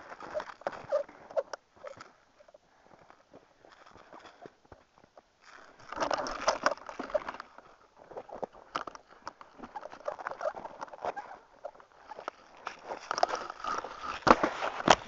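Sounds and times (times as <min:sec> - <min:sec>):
footsteps crunching in snow: 0:07.6 - 0:15.0.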